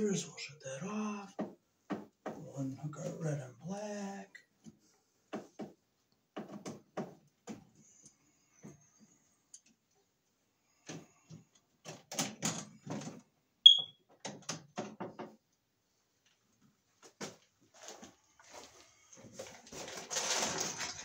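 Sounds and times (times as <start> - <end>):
tool knocking and clicking on wiring: 5.3 - 7.6, 14.1 - 15.4
short high-pitched electronic beep: 13.7 - 13.9.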